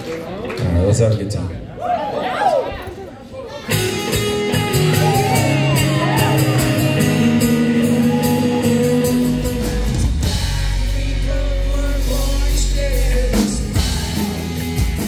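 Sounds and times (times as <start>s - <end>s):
live country rock band: 3.6s - 15.0s
man singing: 5.3s - 15.0s.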